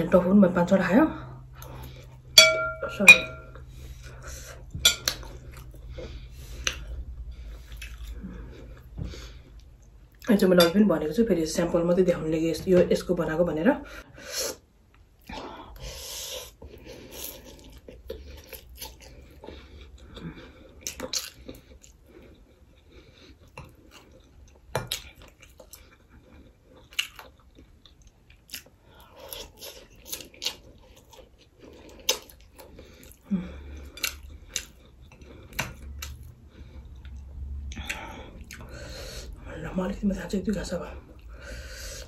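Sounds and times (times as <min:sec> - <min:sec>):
wet chewing: 0:04.9 - 0:10.3, 0:16.9 - 0:38.9.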